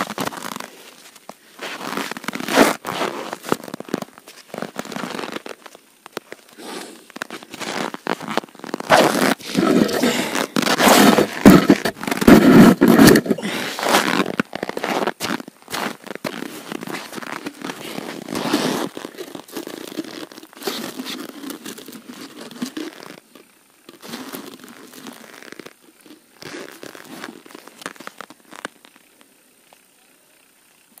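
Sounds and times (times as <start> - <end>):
snow crunching: 0.0 - 29.0
padded suit rustling: 6.6 - 23.1.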